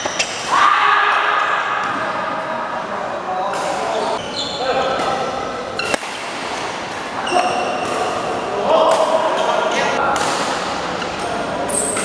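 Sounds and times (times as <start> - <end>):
racket striking shuttlecock: 5.8 - 6.8.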